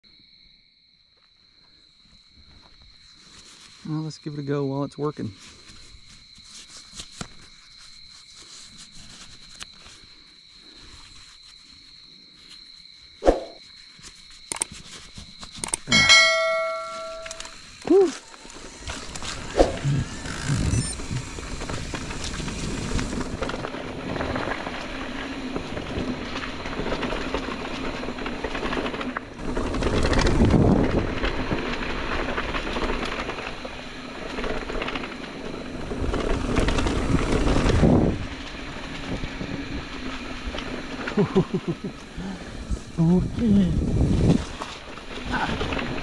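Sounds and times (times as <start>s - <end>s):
bike tyres rolling over dirt: 13.8s - 46.0s.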